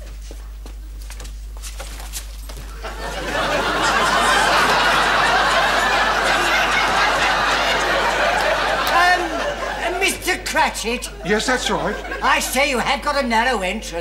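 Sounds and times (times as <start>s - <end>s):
studio audience laughing: 2.7s - 12.8s.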